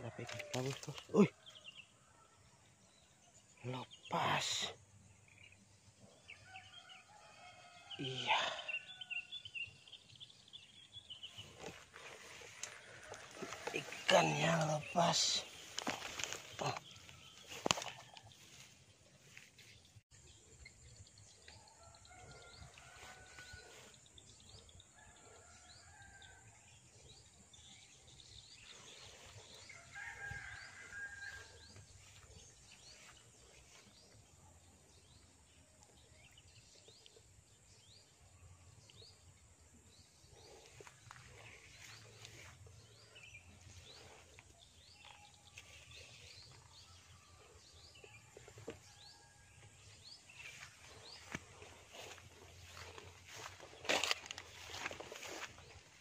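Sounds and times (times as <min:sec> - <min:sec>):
rooster crowing: 0:22.0 - 0:23.9, 0:29.7 - 0:31.6.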